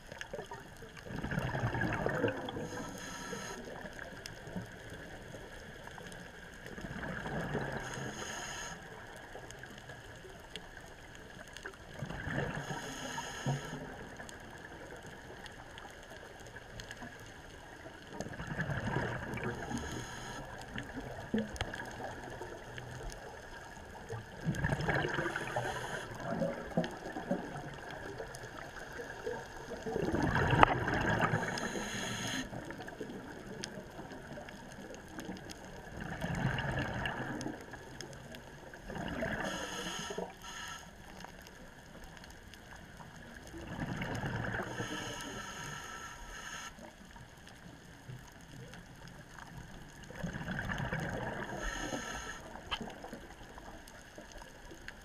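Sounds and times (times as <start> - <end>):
gurgling exhaled bubbles: 0.0 - 6.1, 6.7 - 8.4, 11.7 - 15.4, 17.8 - 40.3, 43.2 - 45.4, 49.8 - 54.6
steady underwater hiss: 0.0 - 55.0.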